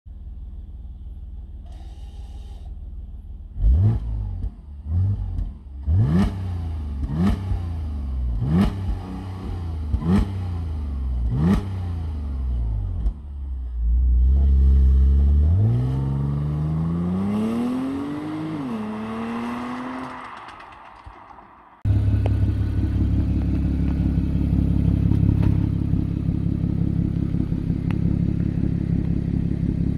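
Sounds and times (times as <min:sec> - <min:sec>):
car engine revving: 0:03.5 - 0:29.9
car pulling away: 0:14.3 - 0:29.9.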